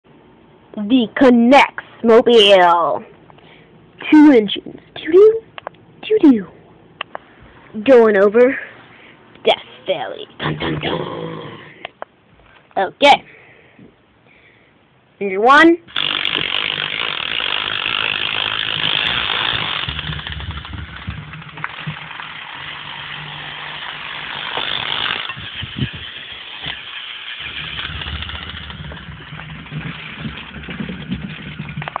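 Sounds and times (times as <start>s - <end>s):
toy car motors whirring: 15.9s - 32.0s.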